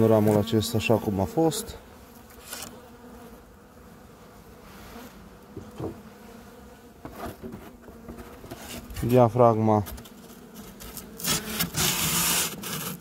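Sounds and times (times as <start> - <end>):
honeybees buzzing: 0.0 - 13.0
knocks of hive woodwork: 5.5 - 6.1, 7.0 - 9.0.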